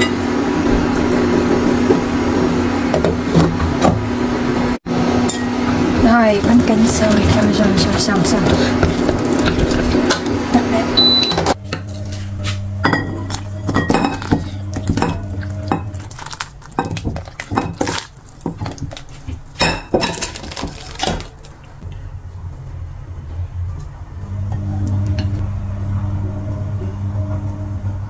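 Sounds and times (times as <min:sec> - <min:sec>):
steady low hum: 0:00.0 - 0:19.9, 0:21.3 - 0:28.0
ladle clinking against pot and bowls: 0:12.8 - 0:16.0.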